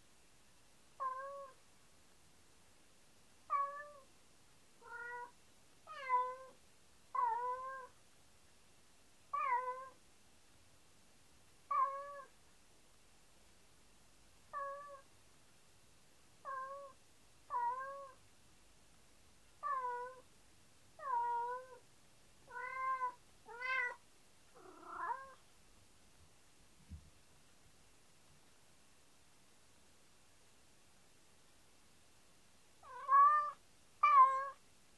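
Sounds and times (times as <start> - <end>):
cat meowing: 3.5 - 4.0, 4.8 - 5.3, 11.7 - 12.3, 14.5 - 15.0, 16.4 - 18.2, 21.0 - 21.8, 22.5 - 24.0, 24.6 - 25.4, 32.8 - 34.6.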